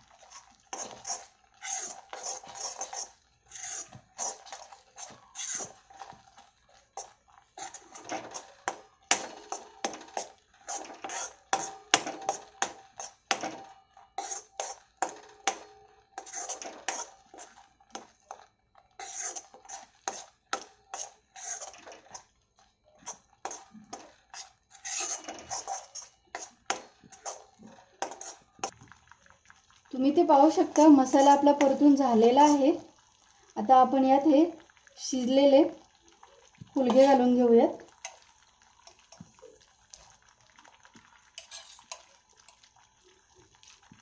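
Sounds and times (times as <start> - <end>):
steel spatula scraping pan: 0.0 - 28.8, 30.2 - 32.8, 36.8 - 37.4, 41.4 - 42.2.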